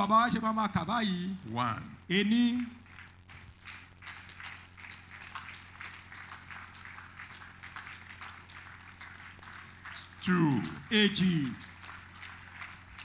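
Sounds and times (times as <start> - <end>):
steady low hum: 0.0 - 13.0
scattered claps and taps: 2.6 - 13.0
faint outdoor crowd: 3.5 - 13.0.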